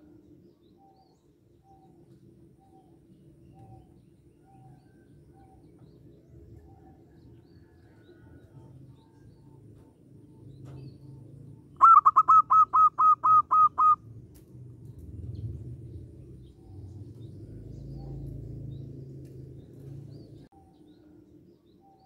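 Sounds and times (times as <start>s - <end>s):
low steady background rumble: 0.0s - 22.0s
dove calling sharp clipped notes: 11.8s - 14.0s.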